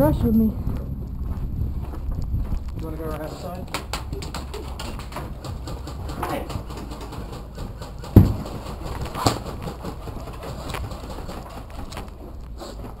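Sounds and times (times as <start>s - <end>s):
footfalls: 0.6s - 13.0s
knocks and rubbing: 3.7s - 12.9s
heavy thump: 8.2s - 9.4s.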